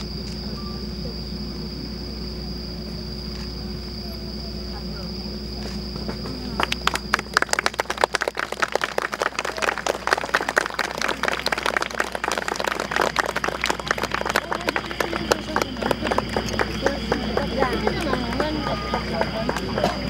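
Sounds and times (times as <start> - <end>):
audience clapping: 6.0 - 20.0.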